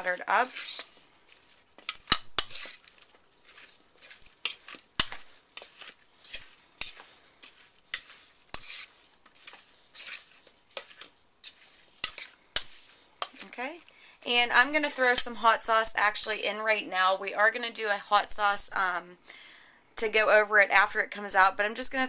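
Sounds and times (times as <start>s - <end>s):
wet batter scraping: 0.0s - 16.3s.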